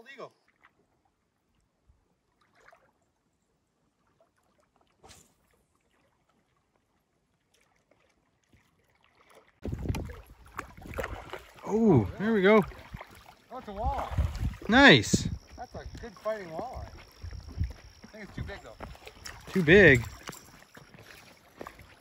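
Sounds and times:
wind buffeting microphone: 0:09.6 - 0:20.3.

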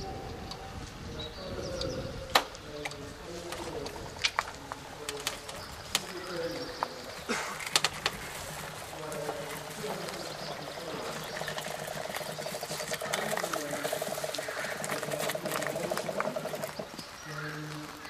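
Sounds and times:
electric motors whirring: 0:01.8 - 0:18.0
fast even rattle: 0:03.5 - 0:17.5.

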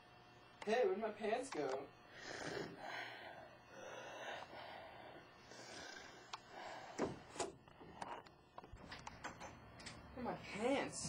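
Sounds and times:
person breathing heavily: 0:02.1 - 0:07.4.

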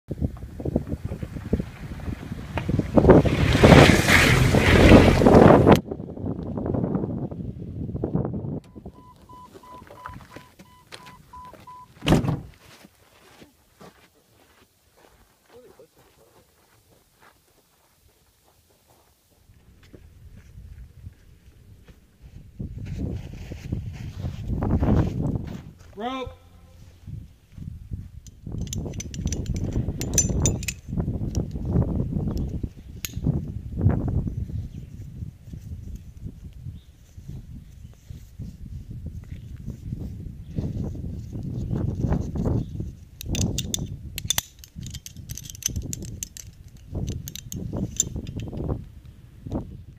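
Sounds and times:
vehicle engine rumble: 0:00.1 - 0:06.7, 0:19.4 - 0:36.6
car warning chime beeping: 0:08.7 - 0:12.0
car door shutting: 0:08.7 - 0:12.5
metal descender and carabiner clinking: 0:28.2 - 0:31.7, 0:43.0 - 0:48.8.

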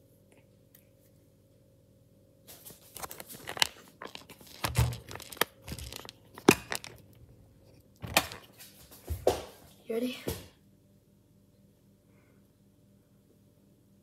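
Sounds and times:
phone handling rustling: 0:03.0 - 0:07.2.

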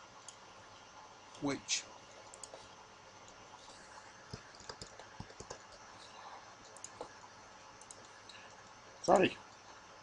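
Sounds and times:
keyboard and mouse clicks: 0:02.2 - 0:03.4, 0:04.2 - 0:05.9, 0:06.6 - 0:07.2, 0:07.8 - 0:08.5.

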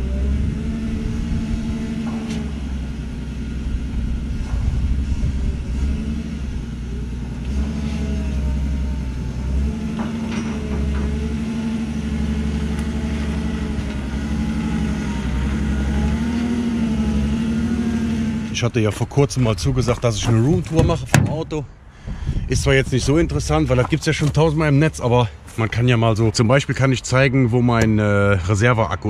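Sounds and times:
forklift engine revving: 0:00.0 - 0:24.3
metal clanks and knocks: 0:01.8 - 0:03.2, 0:09.3 - 0:11.9, 0:20.2 - 0:21.6.

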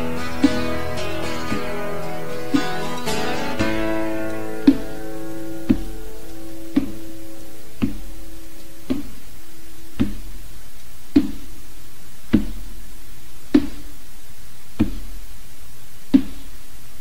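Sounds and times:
steady background hiss: 0:00.0 - 0:17.0
slow ringing knocks: 0:00.1 - 0:08.2.

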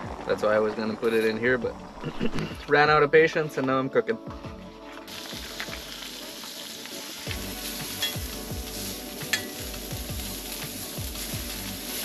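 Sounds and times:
steak sizzling in a pan: 0:04.9 - 0:12.0
utensil clinking against pan: 0:08.0 - 0:08.2.

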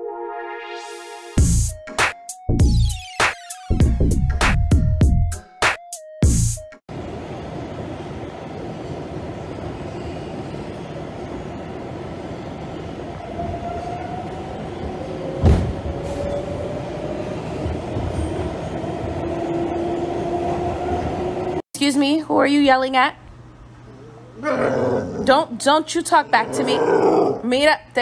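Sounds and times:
subway car rumble and rattle: 0:06.9 - 0:21.7.

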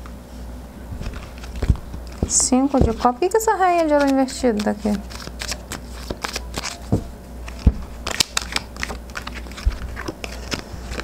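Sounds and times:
cards shuffling: 0:01.0 - 0:11.0
dull thumps: 0:01.6 - 0:03.2.

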